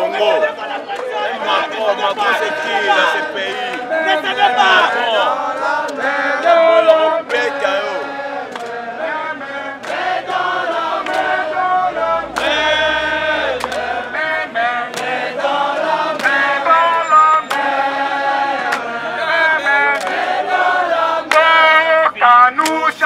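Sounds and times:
group chanting: 0.0s - 22.0s
sharp clap-like beat: 7.2s - 7.6s, 8.4s - 8.9s, 9.8s - 17.8s, 18.6s - 18.9s, 19.9s - 20.4s, 21.2s - 23.0s.

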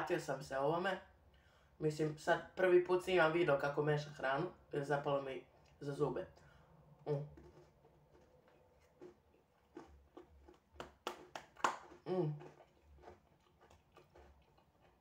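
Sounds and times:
wet chewing and lip smacks: 5.5s - 15.0s.

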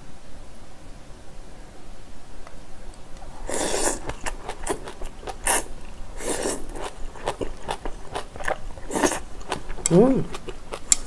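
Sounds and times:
wet chewing clicks: 3.2s - 11.0s
person slurping food: 3.3s - 10.6s.

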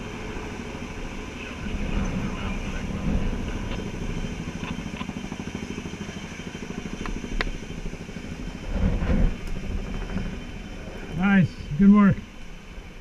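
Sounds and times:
helicopter rotor chop: 0.0s - 13.0s.

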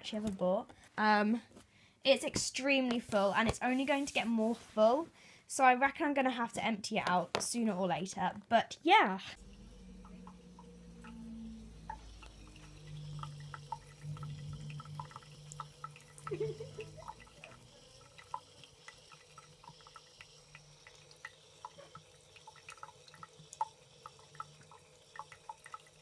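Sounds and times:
low hum: 9.2s - 21.3s
cat lapping water: 9.4s - 26.0s
water dripping from tap: 9.4s - 26.0s.

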